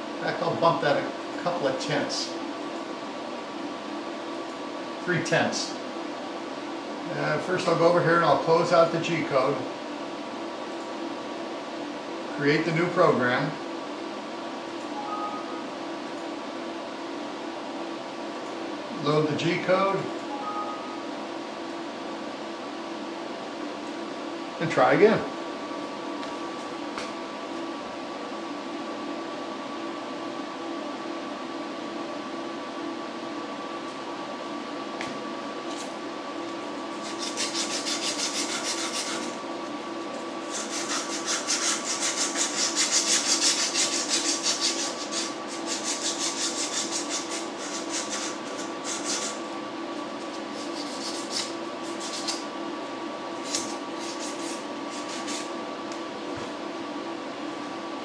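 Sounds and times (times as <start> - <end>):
machine spindle humming: 0.0 - 58.0
end mill rasping into wood: 37.0 - 39.3, 40.5 - 49.4.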